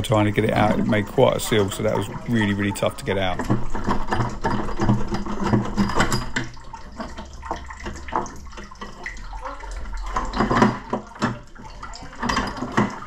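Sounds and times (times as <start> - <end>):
metal pipe knocking and scraping: 0.0 - 9.2
water splashing and trickling: 0.0 - 13.0.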